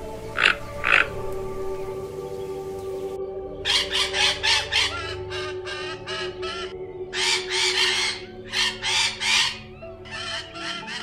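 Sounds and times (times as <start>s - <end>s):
macaws squawking: 0.2s - 1.2s, 3.7s - 11.0s.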